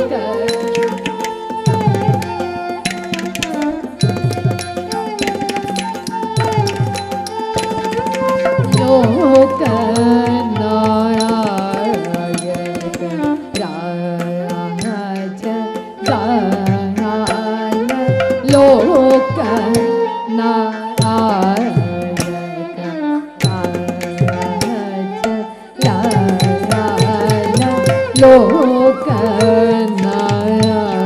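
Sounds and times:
person singing ornamented melody: 8.7 - 31.0.

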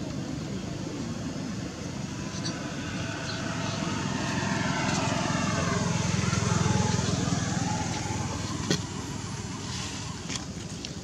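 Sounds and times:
engine running: 0.0 - 11.0.

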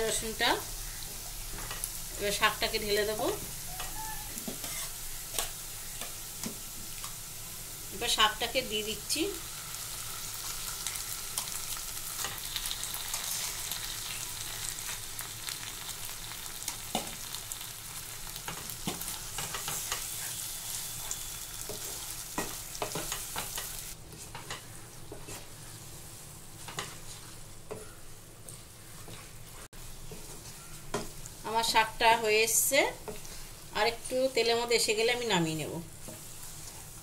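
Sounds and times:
food sizzling in hot oil: 0.0 - 27.7, 28.4 - 37.0
wooden spatula scraping pan: 3.7 - 5.0.

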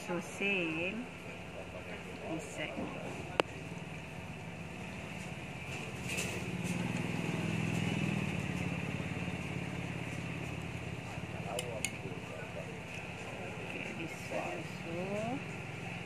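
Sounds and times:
motor engine passing by: 3.5 - 16.0.

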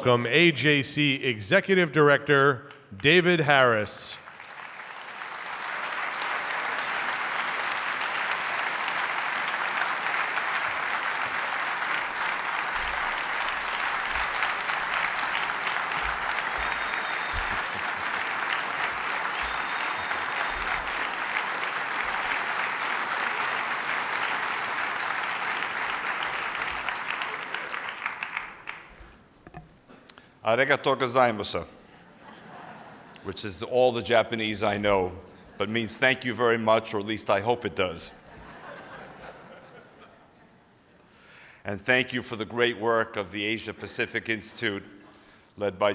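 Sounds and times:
large audience applauding: 4.1 - 29.2.

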